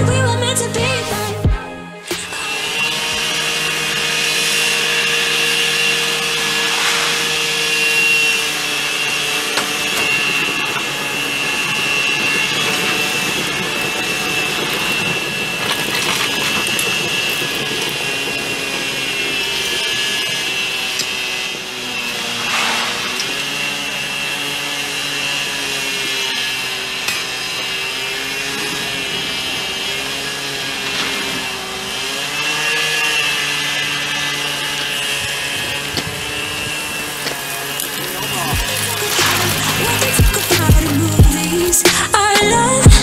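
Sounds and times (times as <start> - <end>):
thermite reaction hissing: 2.1 - 43.0.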